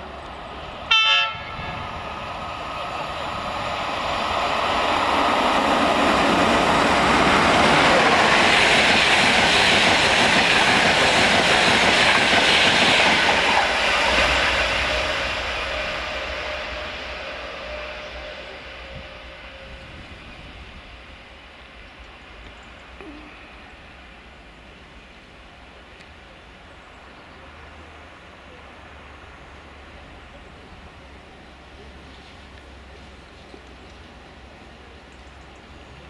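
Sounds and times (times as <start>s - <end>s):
express train passing at speed: 0.0s - 36.0s
train horn blast: 0.9s - 1.9s, 14.3s - 20.6s.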